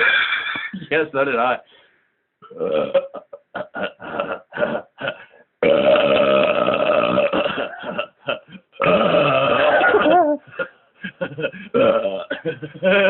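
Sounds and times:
man belching: 0:02.4 - 0:03.7, 0:05.6 - 0:10.2, 0:11.7 - 0:12.4.

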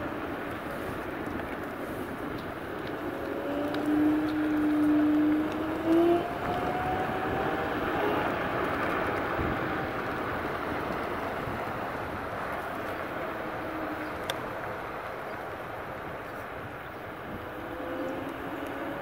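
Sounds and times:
wind and road noise: 0:00.0 - 0:19.0
electric motor whine: 0:03.0 - 0:10.0.

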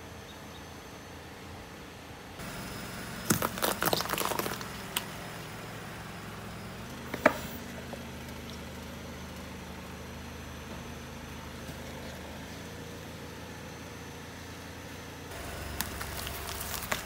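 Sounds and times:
car engine idling: 0:02.2 - 0:17.0
car tyre crushing plums: 0:02.4 - 0:12.9, 0:15.3 - 0:17.0.

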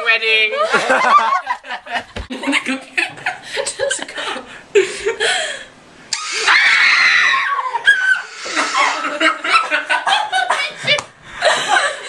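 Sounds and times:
people chuckling and giggling: 0:00.6 - 0:05.5, 0:07.6 - 0:12.0
person laughing loudly: 0:07.6 - 0:10.8.

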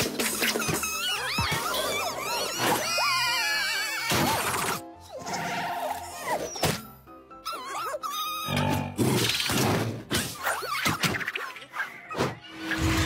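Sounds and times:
cartoon music: 0:00.7 - 0:09.0.

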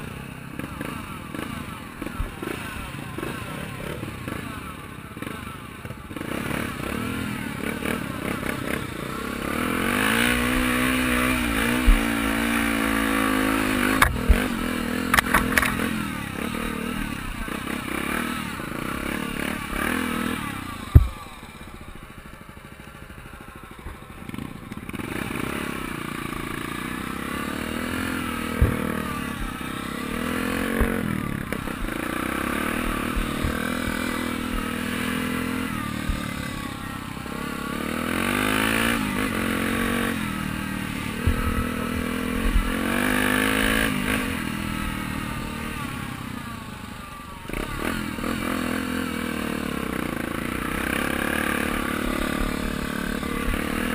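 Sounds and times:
motorcycle engine revving: 0:00.0 - 0:53.9
motorcycle knocking and clattering: 0:13.8 - 0:16.0, 0:20.8 - 0:21.4, 0:28.4 - 0:29.6, 0:30.2 - 0:35.1.

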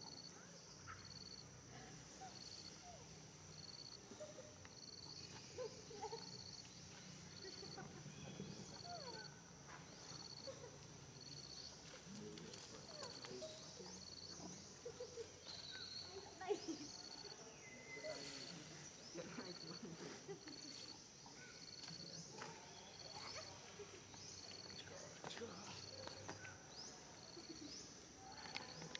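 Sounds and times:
insect chirping in pulses: 0:00.0 - 0:04.0, 0:04.8 - 0:11.8, 0:12.8 - 0:22.2
high insect drone: 0:00.0 - 0:24.8.

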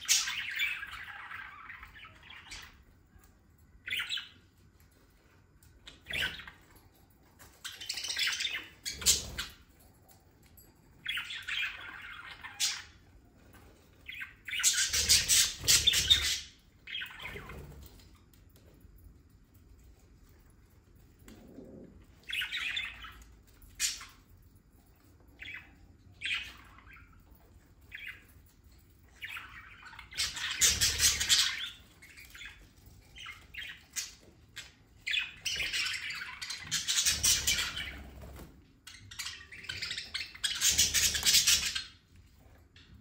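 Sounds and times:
budgerigars chattering and squawking: 0:14.1 - 0:17.6, 0:29.2 - 0:32.6, 0:35.1 - 0:38.1, 0:39.0 - 0:42.0.

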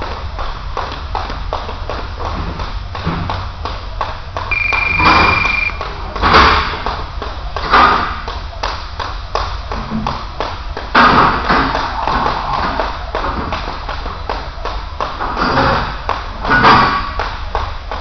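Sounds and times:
skipping rope tapping on gym floor: 0:00.0 - 0:18.0
electronic beep: 0:04.5 - 0:05.8.

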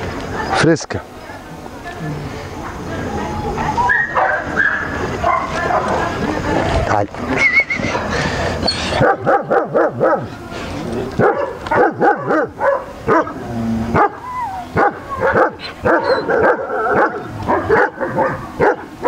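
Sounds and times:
dogs barking: 0:03.2 - 0:06.2, 0:07.8 - 0:10.4, 0:11.1 - 0:19.0
dog whining: 0:14.0 - 0:16.4.

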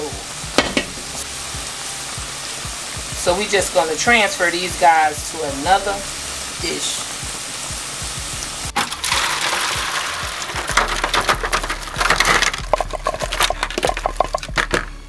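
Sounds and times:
crawfish shells clattering: 0:08.7 - 0:15.0.

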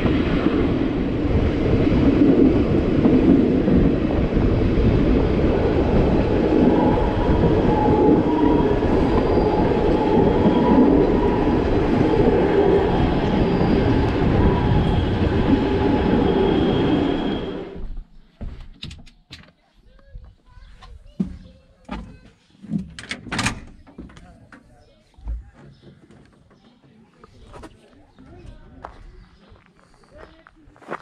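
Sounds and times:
train wheels rumbling on rail: 0:00.0 - 0:18.1
high wheel squeals: 0:12.9 - 0:17.8.

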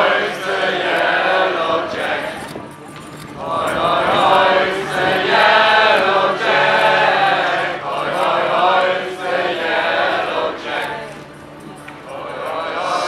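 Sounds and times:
many voices singing a chant: 0:00.0 - 0:02.6, 0:03.4 - 0:11.3, 0:12.0 - 0:13.0.

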